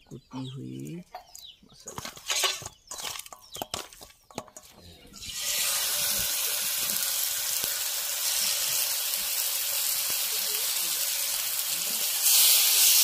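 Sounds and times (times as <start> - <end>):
oil sizzling in pan: 5.2 - 13.0.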